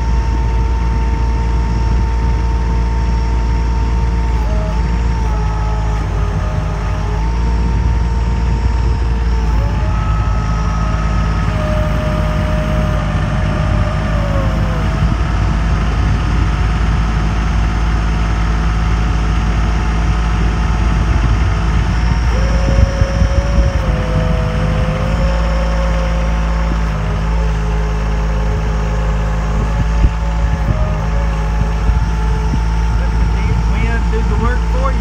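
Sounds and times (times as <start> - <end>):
boat motor droning: 0.0 - 35.0.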